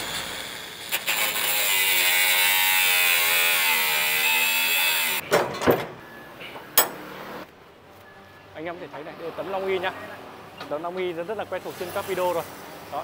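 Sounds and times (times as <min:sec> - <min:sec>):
angle grinder cutting steel: 0:00.0 - 0:05.2
sharp metal knocks: 0:05.2 - 0:06.0, 0:06.8 - 0:07.0.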